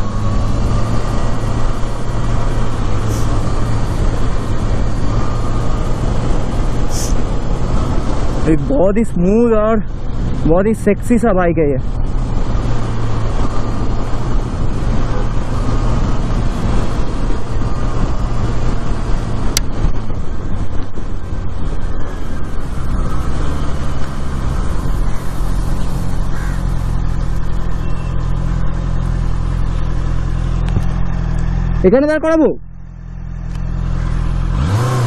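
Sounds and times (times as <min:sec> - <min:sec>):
wind and road noise: 0:00.0 - 0:35.0
motorcycle engine running: 0:11.8 - 0:35.0.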